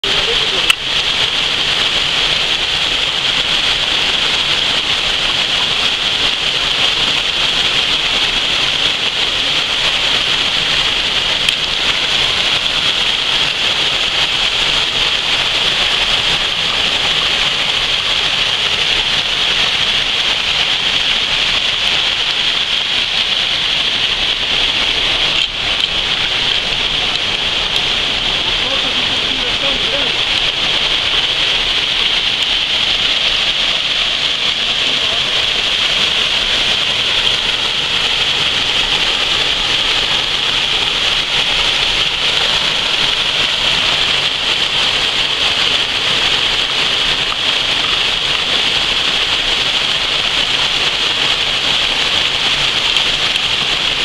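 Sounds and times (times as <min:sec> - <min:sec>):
small waterfall splashing into pool: 0:00.0 - 0:54.0.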